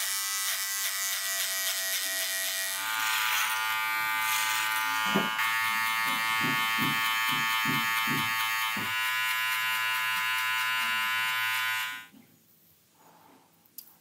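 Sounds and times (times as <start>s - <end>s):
electric hair clipper buzzing: 0.0s - 12.1s.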